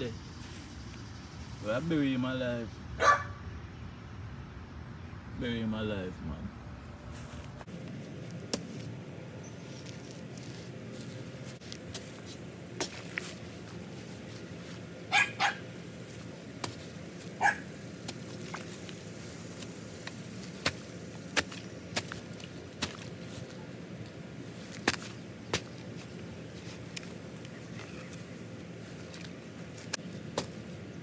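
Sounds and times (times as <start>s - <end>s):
dog barking: 3.0s - 3.4s, 15.1s - 15.6s, 17.4s - 17.7s
foot tamping down dirt: 7.1s - 31.0s.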